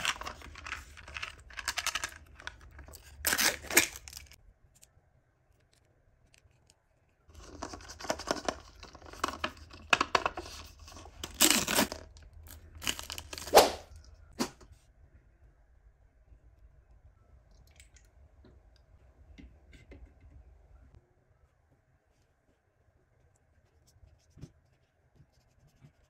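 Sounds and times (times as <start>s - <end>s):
paper wrapper tearing and crinkling: 0.0s - 4.4s, 7.3s - 14.0s.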